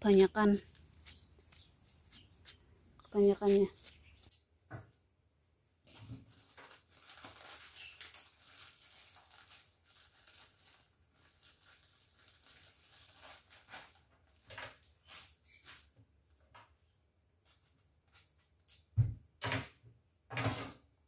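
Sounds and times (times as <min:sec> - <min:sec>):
small rustles: 0:00.0 - 0:04.5, 0:05.8 - 0:16.6.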